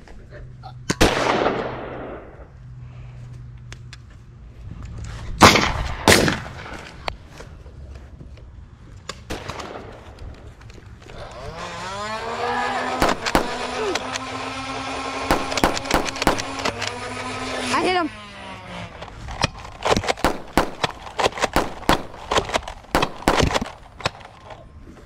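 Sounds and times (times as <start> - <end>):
flywheel blaster whirring: 11.2 - 24.3
toy blaster shots: 11.3 - 19.1, 19.7 - 24.2
darts firing clicks: 15.1 - 17.0.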